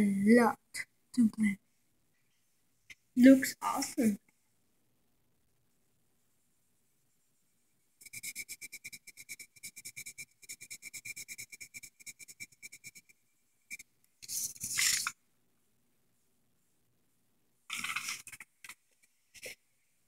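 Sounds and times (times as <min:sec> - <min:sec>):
pencil scratching on paper: 0:08.0 - 0:15.1.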